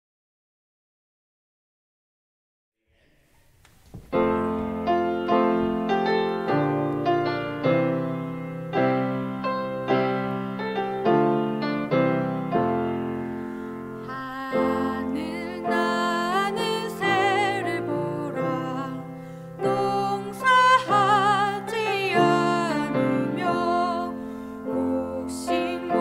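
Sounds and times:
piano chords: 3.9 - 26.0
woman singing: 14.0 - 26.0.

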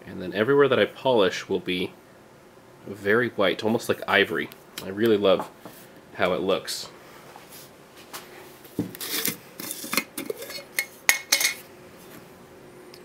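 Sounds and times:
glass jar lid clinking and scraping: 9.0 - 11.6.

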